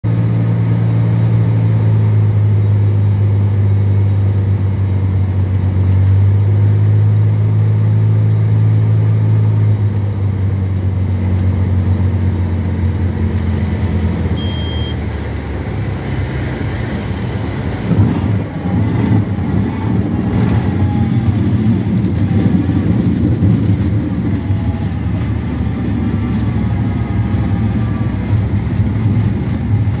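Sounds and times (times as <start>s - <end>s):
wheels rumbling and rattling: 0.0s - 30.0s
aircraft engine droning: 0.1s - 30.0s
short high beep: 13.5s - 15.2s.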